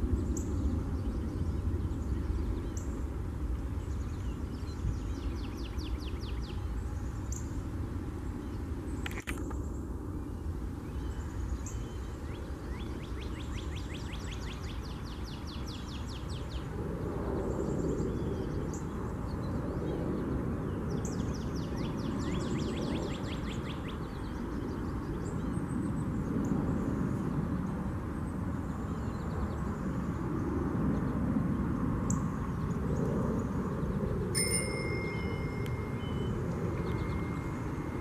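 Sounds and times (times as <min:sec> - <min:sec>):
faint bird chirps: 0:34.0 - 0:38.0
songbird trilling: 0:34.4 - 0:38.0.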